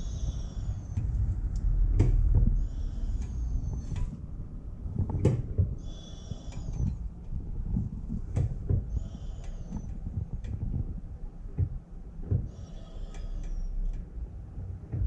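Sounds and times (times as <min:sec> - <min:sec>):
brake pedal squeak: 0:00.0 - 0:04.2, 0:05.0 - 0:07.1, 0:07.7 - 0:11.0, 0:11.6 - 0:14.1
brake pedal knock: 0:01.0 - 0:04.1, 0:05.0 - 0:05.8, 0:07.7 - 0:12.6.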